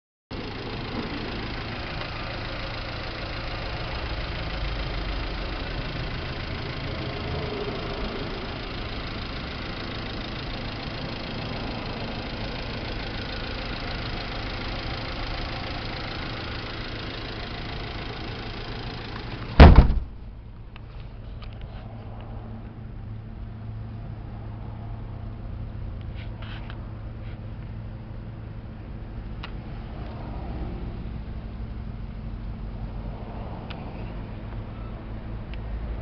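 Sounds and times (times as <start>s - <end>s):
van engine idling: 0.3s - 36.0s
loud bang: 19.6s - 20.4s.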